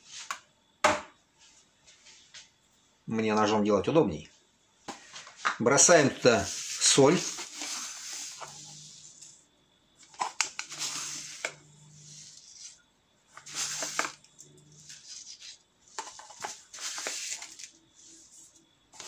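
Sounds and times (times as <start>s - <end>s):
spoon scraping salt: 6.1s - 9.4s, 10.1s - 19.0s.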